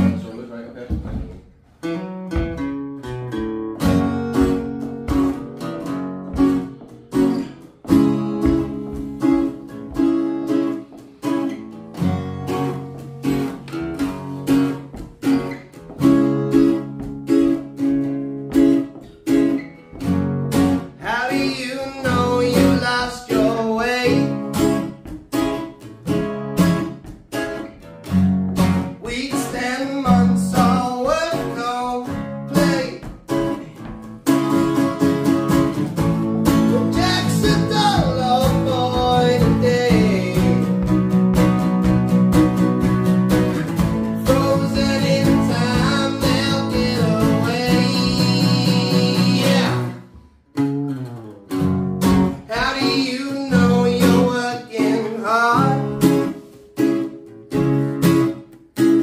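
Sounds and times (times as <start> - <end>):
acoustic guitars strummed: 0.0 - 59.0
man singing: 20.9 - 25.0, 28.9 - 34.0, 36.5 - 41.2, 43.8 - 50.1, 52.4 - 56.4.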